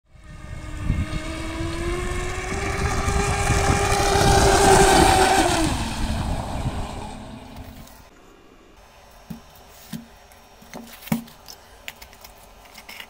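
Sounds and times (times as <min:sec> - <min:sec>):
electric motor whining: 0:00.2 - 0:08.1.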